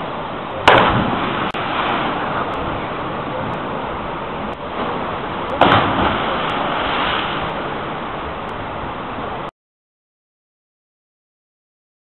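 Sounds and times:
wind and water rushing: 0.0 - 9.5
loud splash into water: 0.6 - 2.5, 5.6 - 7.5.

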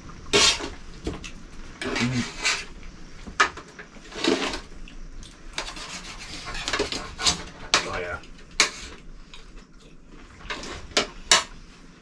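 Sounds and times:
cutlery scraping and clinking on plates: 5.5 - 9.5.

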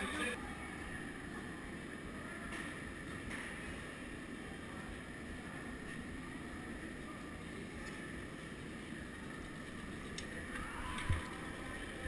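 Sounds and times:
muffled indoor hall noise: 0.0 - 12.0
faint clicks: 9.3 - 12.0.

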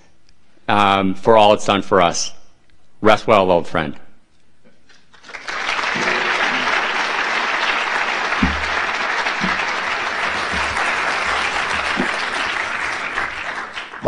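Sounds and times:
audience applauding: 5.1 - 14.0.

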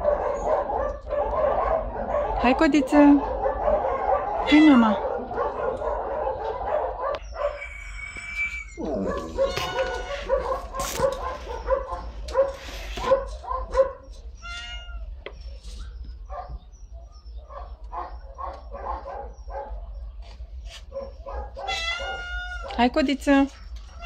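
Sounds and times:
cat meowing: 7.5 - 10.3, 14.4 - 15.2, 21.6 - 22.8.

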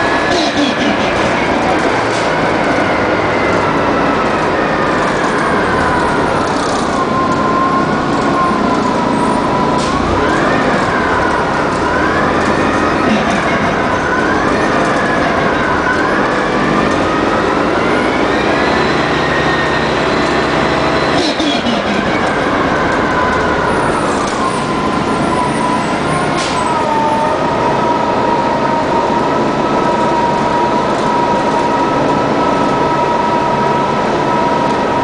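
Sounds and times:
bus engine whine: 0.0 - 35.0.

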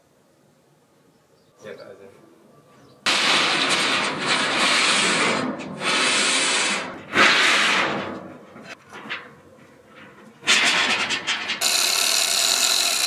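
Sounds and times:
chain hoist rubbing and scraping: 11.6 - 13.0.

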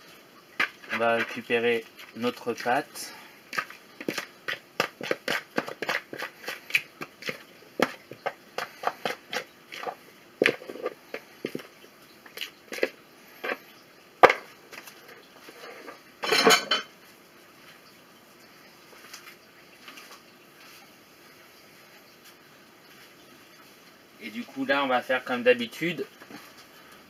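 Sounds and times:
spatula scraping bowl: 0.6 - 13.6.

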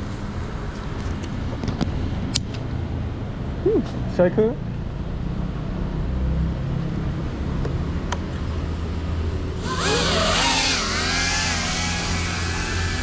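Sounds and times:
drone propellers whirring: 9.5 - 13.0.

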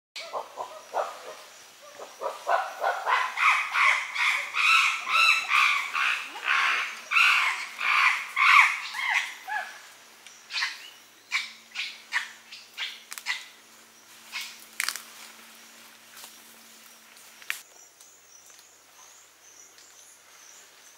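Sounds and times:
loud animal calls: 0.2 - 9.8.

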